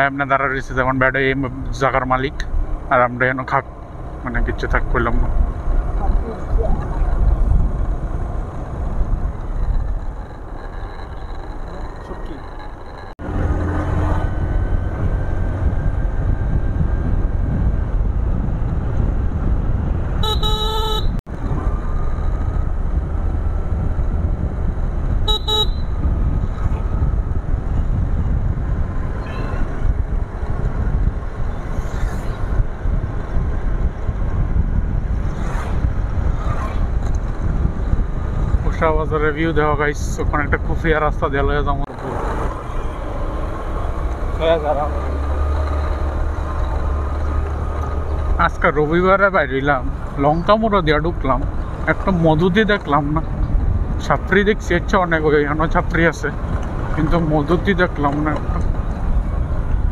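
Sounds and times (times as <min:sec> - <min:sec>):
motorcycle road rumble: 0:00.0 - 0:59.9
wind rushing: 0:13.2 - 0:20.3, 0:21.0 - 0:44.4
vehicle horn honking: 0:20.2 - 0:21.2, 0:25.2 - 0:26.0.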